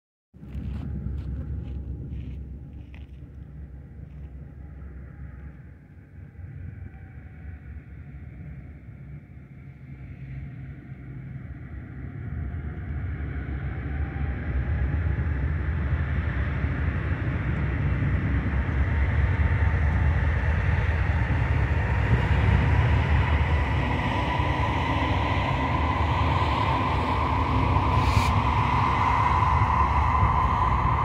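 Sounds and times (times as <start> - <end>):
high whine: 0.4 - 31.0
locomotive engine rumble: 13.7 - 31.0.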